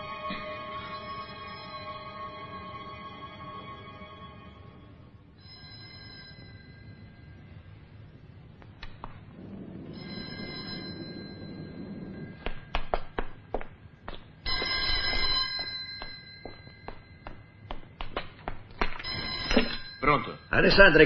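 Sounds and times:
telephone ringing: 0:05.4 - 0:07.3, 0:09.8 - 0:12.5, 0:14.5 - 0:17.4, 0:19.0 - 0:21.0.

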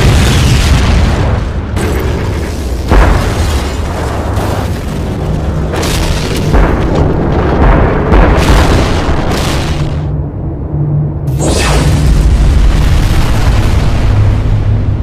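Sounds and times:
explosion booms: 0:02.8 - 0:04.7, 0:05.7 - 0:10.1.

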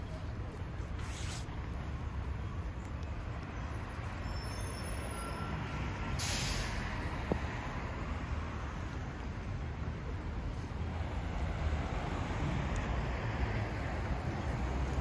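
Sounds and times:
road traffic rumble: 0:00.0 - 0:15.0
faint high squeals: 0:03.6 - 0:06.2
short burst of hiss: 0:06.2 - 0:06.8.

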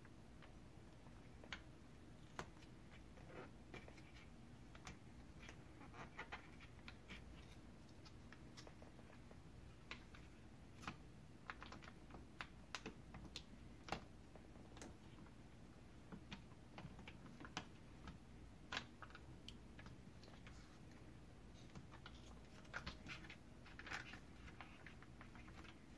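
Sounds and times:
paper and foil crinkling: 0:21.6 - 0:25.9.

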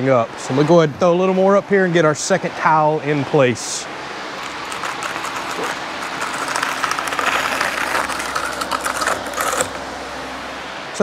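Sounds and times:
trowel scraping mortar: 0:04.4 - 0:09.8.

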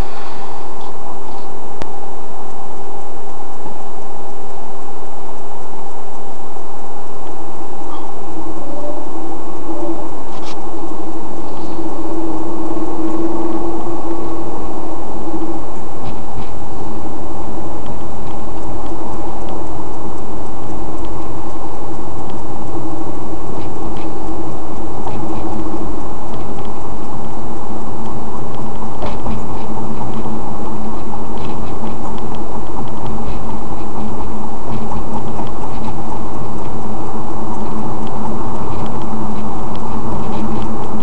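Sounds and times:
crackling ticks: 0:12.9 - 0:41.0
faint ticks: 0:28.0 - 0:41.0.

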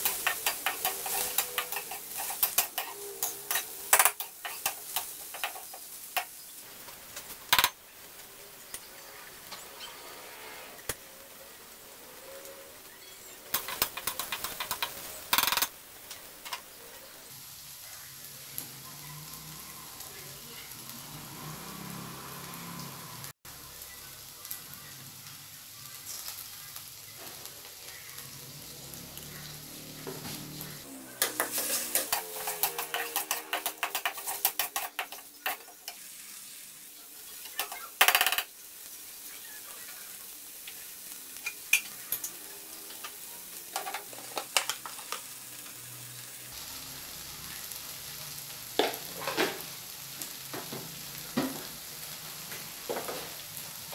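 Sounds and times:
metal spatula scraping a wok: 0:00.0 - 0:05.9, 0:30.0 - 0:36.5
food sizzling in oil: 0:00.0 - 0:53.9.

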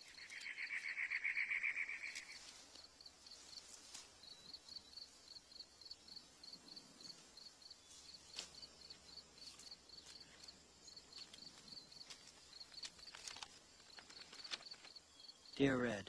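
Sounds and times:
crickets chirping: 0:00.0 - 0:16.0
envelope paper crinkling: 0:12.0 - 0:15.0.

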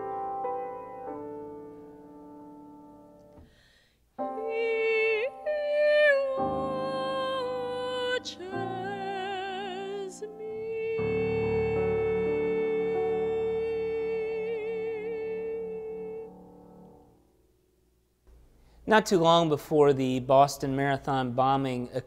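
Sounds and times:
piano chord: 0:00.0 - 0:17.8
woman singing with vibrato: 0:04.2 - 0:16.5.

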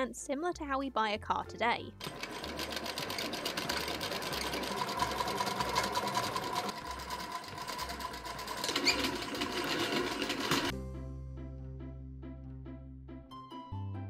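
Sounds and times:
sewing machine clattering: 0:02.0 - 0:10.7.

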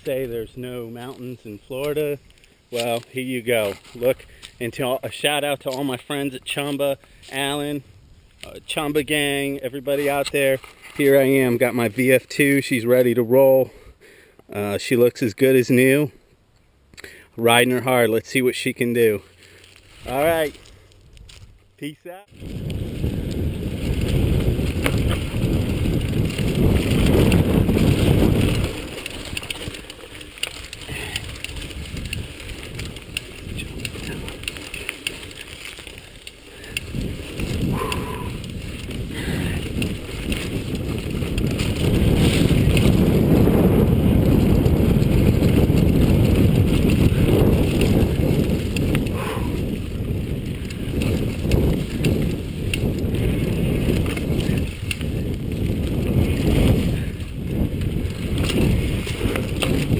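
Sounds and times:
bike tyres rattling over dirt: 0:00.0 - 0:13.8, 0:17.4 - 0:59.9
wind rumble on microphone: 0:22.3 - 0:59.9.

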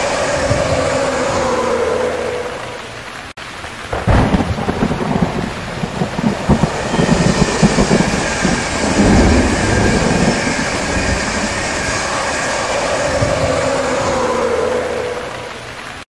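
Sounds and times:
train rushing past: 0:00.0 - 0:03.1, 0:04.6 - 0:16.0
locomotive whine: 0:00.0 - 0:03.3, 0:04.6 - 0:16.0.

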